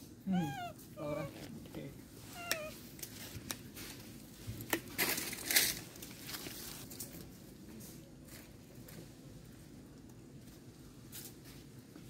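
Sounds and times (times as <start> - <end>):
crunching and rustling: 1.0 - 9.2.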